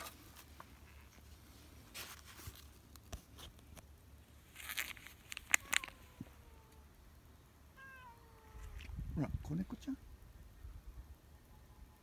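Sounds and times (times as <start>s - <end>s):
rustling in dry leaves: 0.0s - 6.8s.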